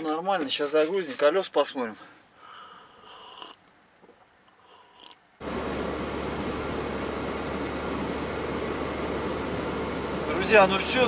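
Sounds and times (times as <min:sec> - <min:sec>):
van engine droning: 0:05.4 - 0:11.0.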